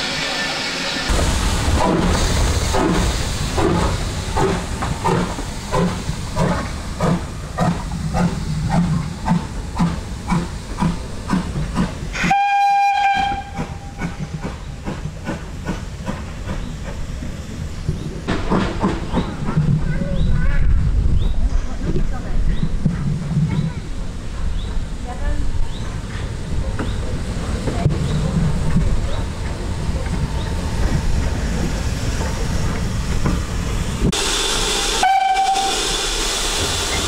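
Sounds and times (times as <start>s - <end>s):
steam locomotive chuffing: 0.0s - 37.0s
steam whistle blast: 12.2s - 13.7s, 34.2s - 36.5s.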